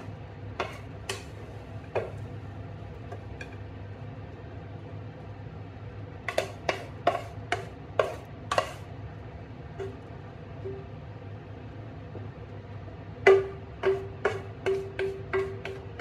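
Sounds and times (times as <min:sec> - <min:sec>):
wooden spatula knocking a pan: 0:00.0 - 0:02.2, 0:06.3 - 0:08.8, 0:13.2 - 0:16.0
steady low hum: 0:00.0 - 0:16.0.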